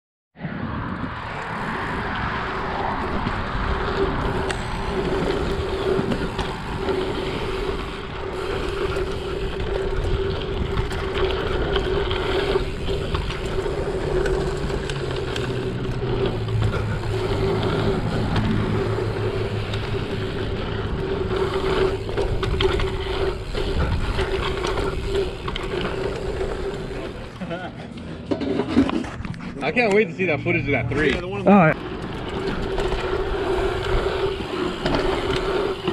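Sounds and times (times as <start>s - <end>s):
wind rushing over microphone: 0.4s - 27.0s.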